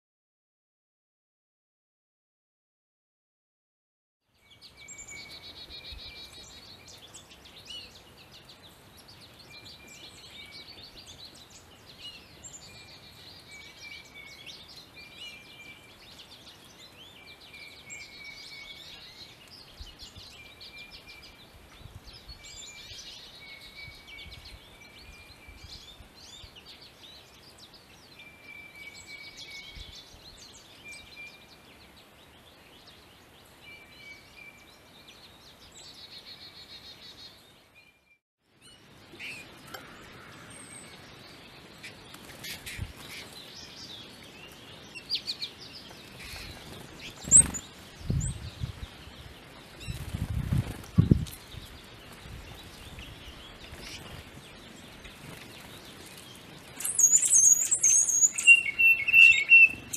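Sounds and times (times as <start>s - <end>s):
songbirds chirping and trilling: 4.3s - 59.9s
short whistled bird notes: 56.8s - 59.8s.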